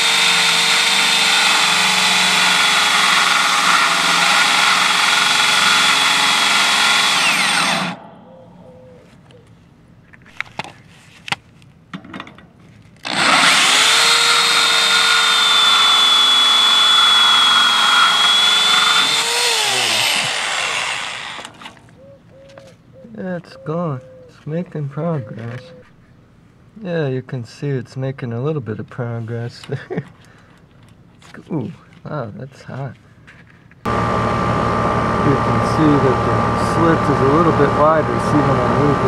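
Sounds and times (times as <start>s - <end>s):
rotary tool grinding metal: 0.0s - 8.1s, 13.0s - 21.9s, 35.2s - 39.0s.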